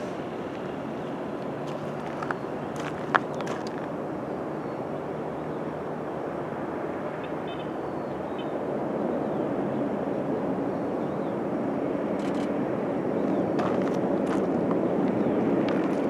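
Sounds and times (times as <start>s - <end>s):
distant turboprop engines droning: 0.0s - 16.0s.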